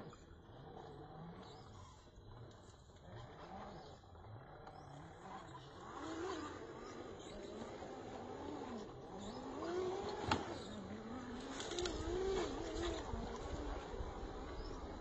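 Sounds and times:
rc car motor and gear whine: 0.0 - 15.0.

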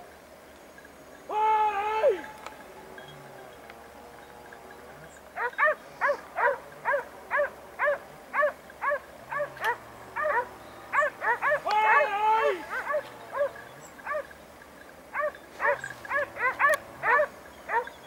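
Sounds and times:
dog barking: 5.4 - 12.0, 12.7 - 14.3, 15.2 - 17.9.

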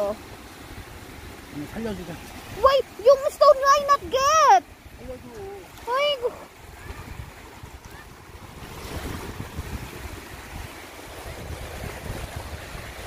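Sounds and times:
small waves washing on shore: 0.0 - 13.0
wind rumbling on microphone: 0.0 - 13.0.

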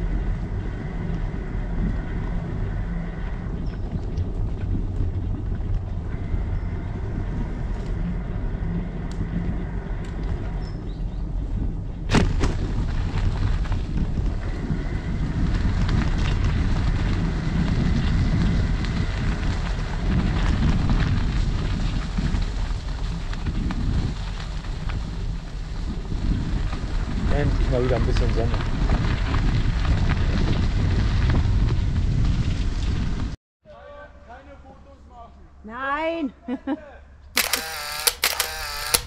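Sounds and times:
wind buffeting microphone: 0.0 - 33.4
tyres rolling over gravel: 12.3 - 32.3.

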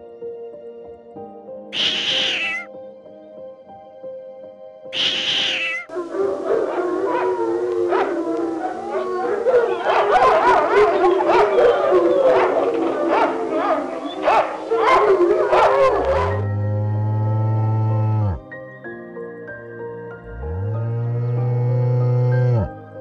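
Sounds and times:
soft piano music: 0.0 - 4.9, 5.9 - 23.0
animal calls: 1.8 - 2.7, 5.0 - 18.4
chorus of many animals calling: 1.8 - 2.7, 5.0 - 18.4.

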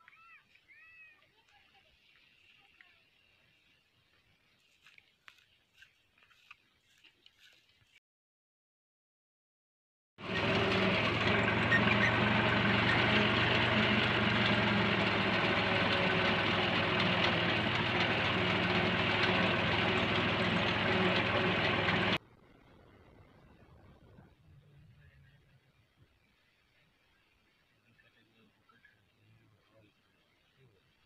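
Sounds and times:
tractor engine running under load: 10.2 - 23.1.

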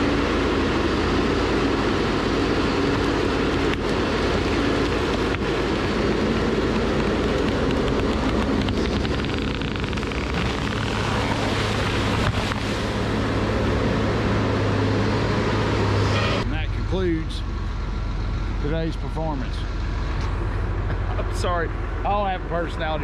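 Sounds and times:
heavy machine engine and hydraulics: 0.0 - 23.0
saw cutting through tree: 2.9 - 13.1.

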